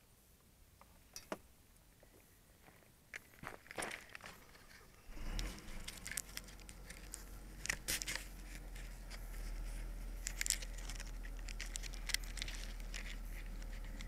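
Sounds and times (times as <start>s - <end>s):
dry grass crackling against camera: 2.0s - 14.0s
low rumble: 4.8s - 14.0s.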